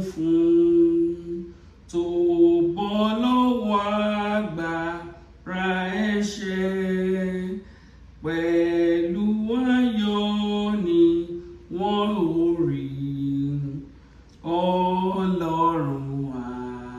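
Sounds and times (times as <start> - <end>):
woman singing a hymn unaccompanied: 0.0 - 7.6, 8.2 - 16.9.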